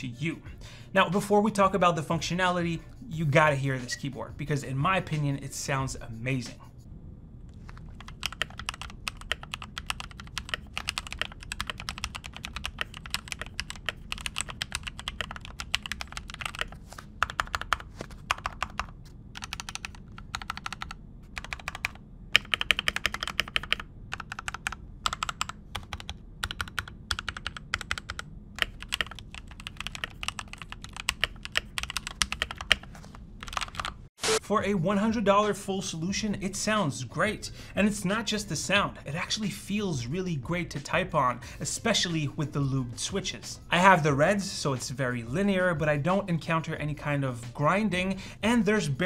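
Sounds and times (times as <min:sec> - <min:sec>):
mechanical keyboard typing: 0:08.0 - 0:34.0.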